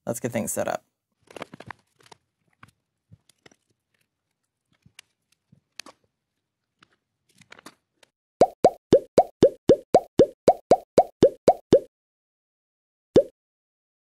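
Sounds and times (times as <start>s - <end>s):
small items clicking and rustling: 1.2s - 8.1s.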